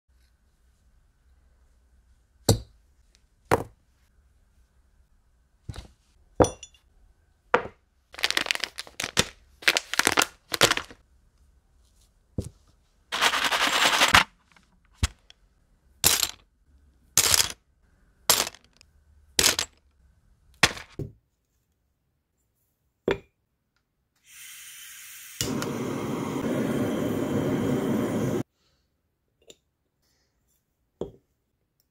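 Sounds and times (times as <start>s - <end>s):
plastic bag crinkling: 8.2s - 11.0s, 13.1s - 14.3s
parts clicking and knocking: 17.2s - 17.6s, 18.3s - 19.9s
blow torch flame hissing: 24.2s - 28.5s.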